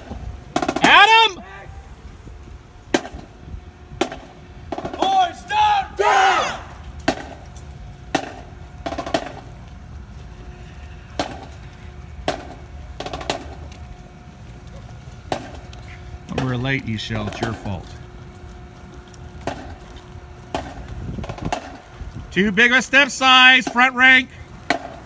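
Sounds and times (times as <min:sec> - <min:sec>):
person calling out: 0:00.8 - 0:01.8.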